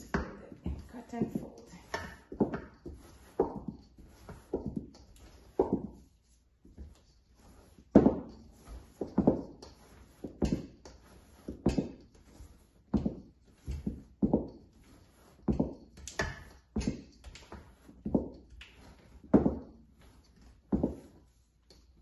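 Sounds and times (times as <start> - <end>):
wooden spoon scraping metal bowl: 0.0 - 6.2, 6.8 - 21.9.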